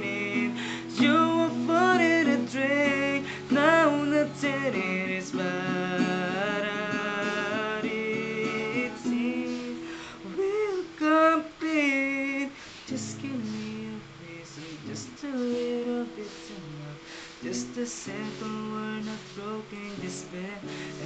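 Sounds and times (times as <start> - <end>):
acoustic guitar: 0.0 - 21.0
man singing: 0.0 - 21.0.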